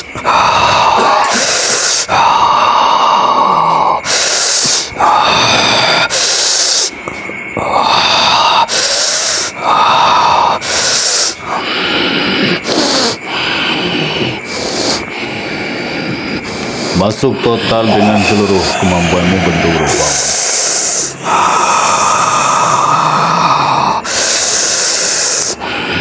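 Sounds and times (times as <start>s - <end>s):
man breathing heavily: 0.0s - 26.0s
man groaning: 17.5s - 20.4s.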